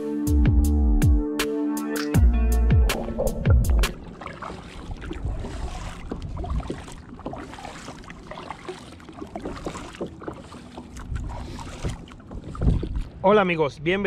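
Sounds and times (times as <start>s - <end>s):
paddle splashing in water: 2.9s - 13.2s.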